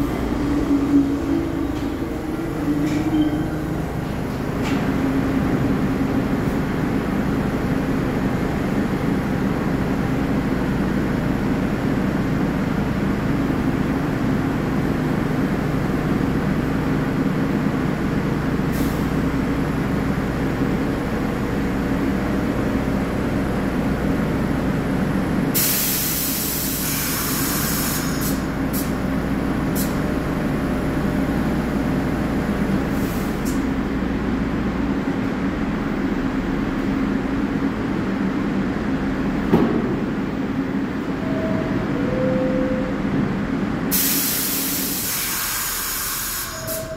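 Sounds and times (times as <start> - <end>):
train equipment humming: 0.0 - 46.9
air release hiss: 25.6 - 28.9, 43.9 - 46.9.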